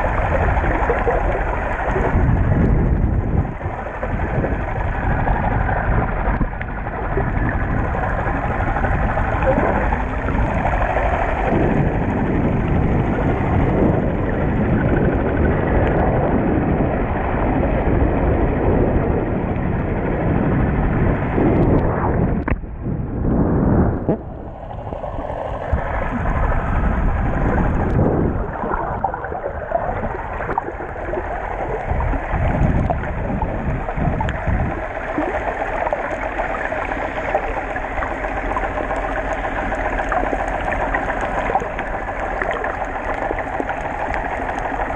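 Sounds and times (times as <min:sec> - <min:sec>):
muffled underwater water rush: 0:00.0 - 0:44.9.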